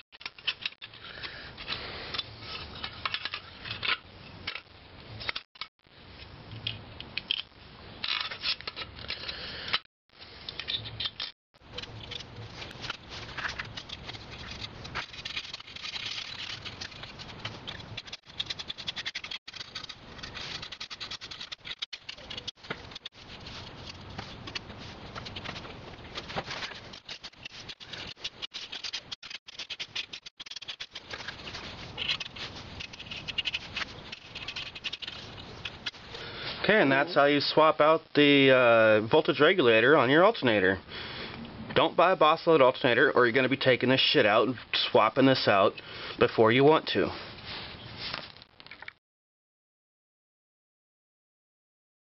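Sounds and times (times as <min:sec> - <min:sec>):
clicks scrapes and rattles handling: 0:00.2 - 0:05.7, 0:06.5 - 0:36.2.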